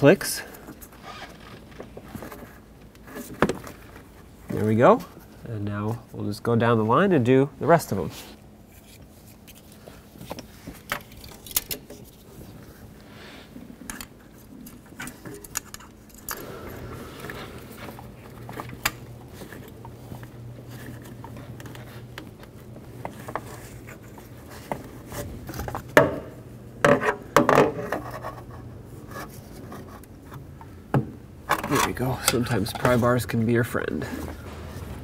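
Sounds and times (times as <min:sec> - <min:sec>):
low steady hum: 0:00.0 - 0:35.0
rubbing and scraping on wires: 0:14.2 - 0:25.8.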